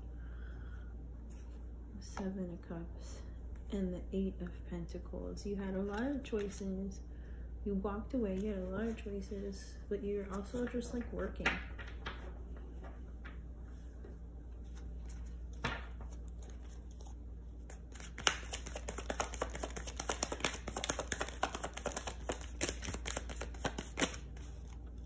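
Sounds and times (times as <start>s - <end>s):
low room hum: 0.0s - 25.0s
cards being shuffled: 14.6s - 25.0s
card tapping: 18.0s - 24.2s.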